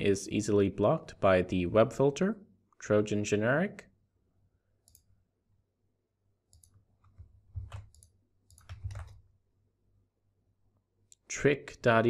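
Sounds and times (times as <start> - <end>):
computer mouse and keyboard clicks: 6.5 - 9.2.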